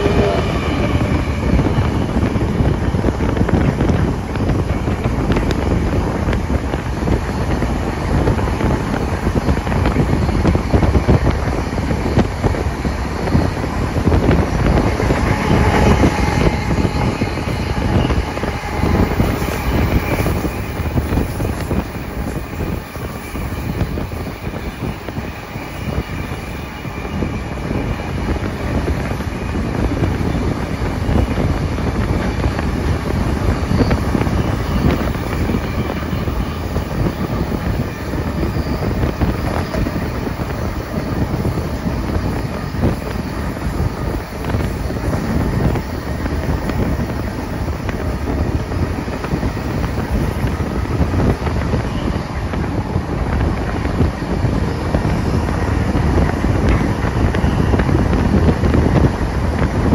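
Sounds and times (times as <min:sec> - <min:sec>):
train wheels rumbling on rail: 0:00.0 - 0:59.9
wind buffeting microphone: 0:00.0 - 0:59.9.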